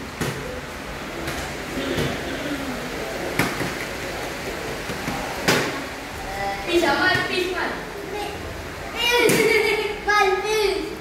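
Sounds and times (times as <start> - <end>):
steady background hiss: 0.0 - 11.0
faint children's voices: 4.1 - 11.0.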